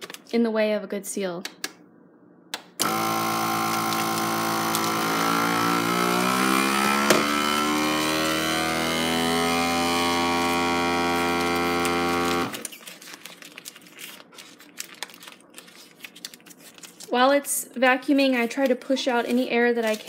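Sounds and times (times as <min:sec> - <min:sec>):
vacuum sealer pump running: 0:02.8 - 0:12.6.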